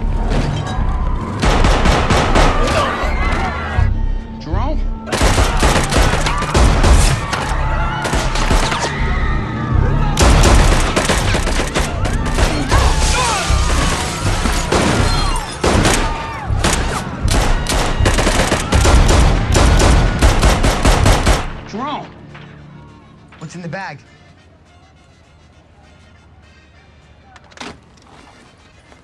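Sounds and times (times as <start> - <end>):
rapid gunfire: 1.4 - 2.7, 5.1 - 7.2, 10.2 - 12.7, 14.6 - 21.6.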